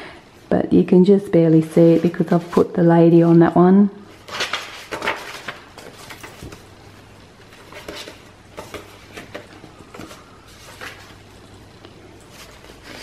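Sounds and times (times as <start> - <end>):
paper pages rustling: 4.1 - 6.7, 7.4 - 11.4, 12.2 - 13.0.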